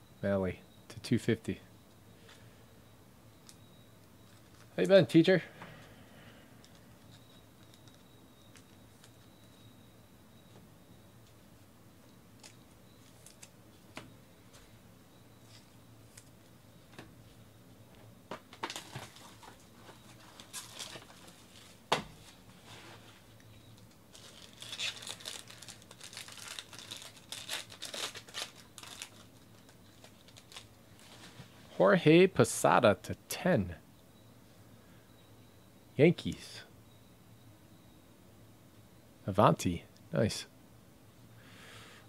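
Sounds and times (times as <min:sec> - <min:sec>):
foil wrapper crinkling and tearing: 0:20.2 - 0:21.8, 0:23.8 - 0:31.4.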